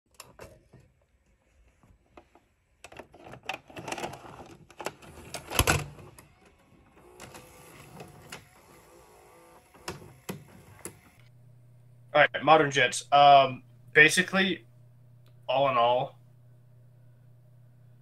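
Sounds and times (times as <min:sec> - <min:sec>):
faint steady whir: 0:05.5 - 0:18.0.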